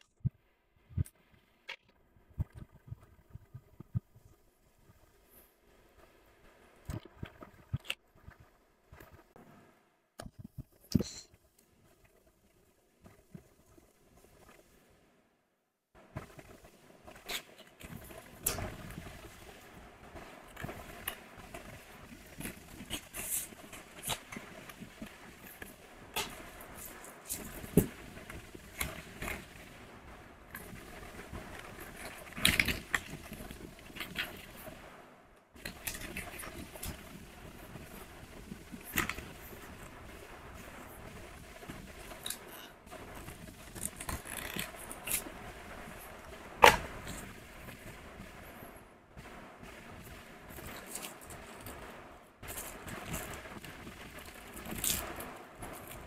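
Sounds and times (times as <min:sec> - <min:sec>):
box flaps clicking and scraping: 0:46.6 - 0:47.2.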